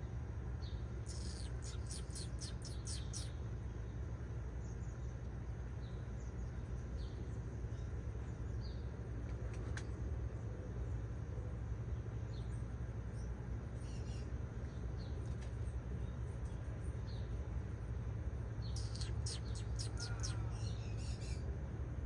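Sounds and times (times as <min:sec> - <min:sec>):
steady low rumble: 0:00.0 - 0:22.0
small bird chipping: 0:00.6 - 0:03.8, 0:18.6 - 0:21.5.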